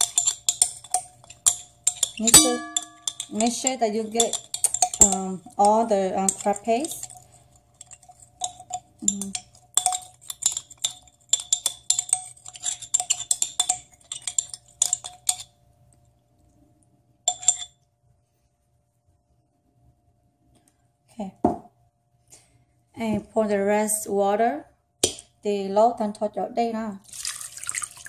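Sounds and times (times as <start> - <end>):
spoon clinking inside a bottle: 0.0 - 15.5, 17.3 - 17.7.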